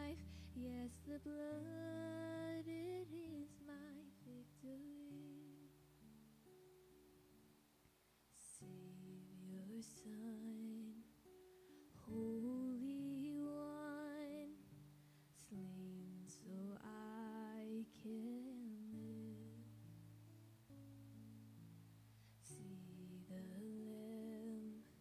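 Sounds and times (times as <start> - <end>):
woman singing with vibrato: 0.0 - 5.7, 12.1 - 14.6
acoustic guitar chords: 0.0 - 7.6, 8.4 - 25.0.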